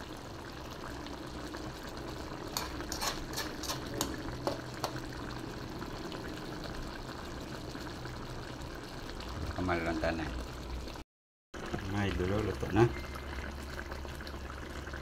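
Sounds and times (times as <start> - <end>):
sauce simmering and bubbling: 0.0 - 11.0, 11.6 - 15.0
metal spoon scraping a pan: 2.5 - 5.0.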